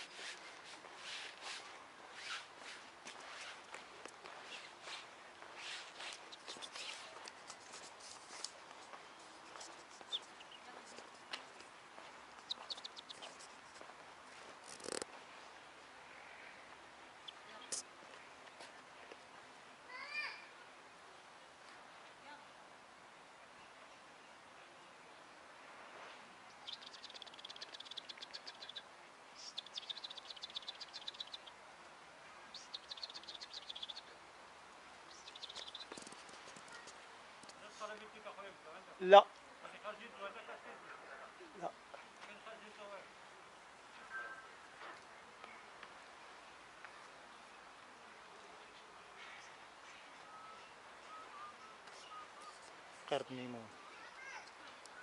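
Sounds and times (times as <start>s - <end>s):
faint bird chirps: 5.6s - 7.2s, 12.4s - 13.5s, 26.5s - 31.6s, 32.4s - 34.2s, 35.1s - 37.0s, 44.0s - 44.6s, 48.5s - 52.8s
bird singing high trills: 26.6s - 28.8s, 29.4s - 31.5s, 32.5s - 34.1s.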